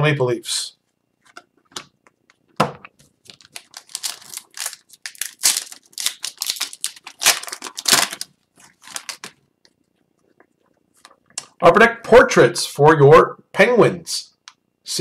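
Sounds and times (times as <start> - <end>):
card pack wrapper crinkling and tearing: 3.2 - 9.4.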